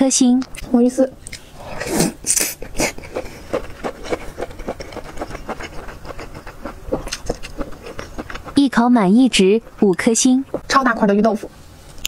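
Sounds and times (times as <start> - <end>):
noodles slurped: 1.6 - 10.8
chewing with wet mouth clicks: 2.3 - 8.8.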